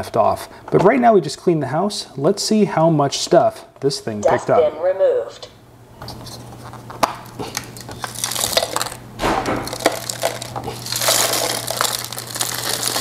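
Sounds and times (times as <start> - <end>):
steady low hum: 3.6 - 13.0
debris pouring out: 8.0 - 13.0.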